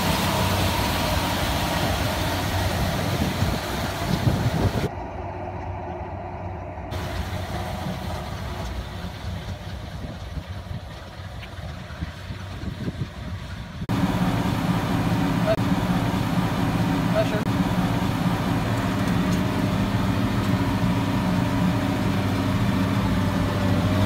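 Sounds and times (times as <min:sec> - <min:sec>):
round baler working: 0:00.0 - 0:24.0
tractor engine running under load: 0:00.0 - 0:24.0.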